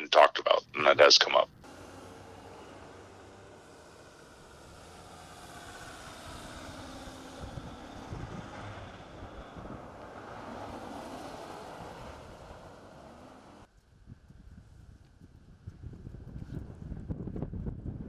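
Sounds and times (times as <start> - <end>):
pickup trucks driving past: 1.6 - 13.7.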